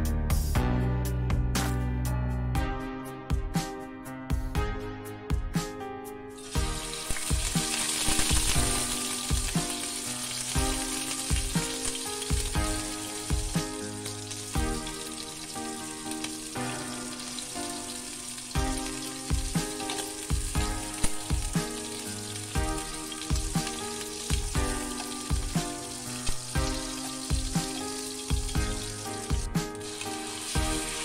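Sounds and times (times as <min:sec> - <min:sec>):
background music with beat: 0:00.0 - 0:31.0
prawns sizzling in hot oil: 0:06.4 - 0:31.0.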